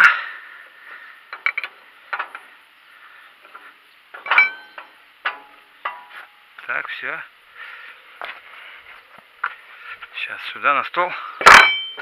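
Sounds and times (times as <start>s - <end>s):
metal parts clinking: 1.3s - 2.4s, 4.2s - 6.0s, 11.4s - 12.0s
metallic clank with ring: 4.2s - 6.2s, 11.4s - 12.0s.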